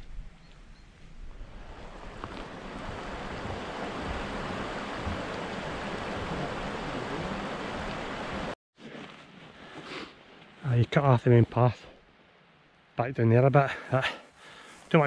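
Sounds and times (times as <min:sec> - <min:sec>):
wind buffeting microphone: 0:00.0 - 0:08.5
stream flowing: 0:01.4 - 0:08.6.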